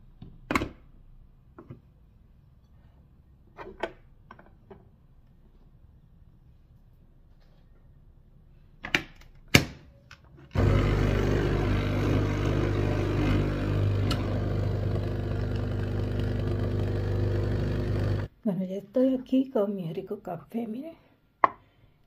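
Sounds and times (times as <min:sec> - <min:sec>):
coffee machine pump buzzing: 0:10.6 - 0:18.3
coffee pouring: 0:10.6 - 0:18.3.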